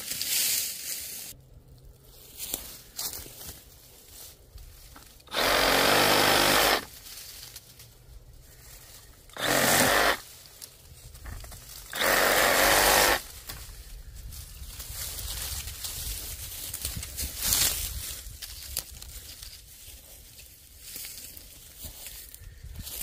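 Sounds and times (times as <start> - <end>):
reciprocating saw cutting stems: 5.2 - 7.0, 9.3 - 10.3, 11.8 - 13.3.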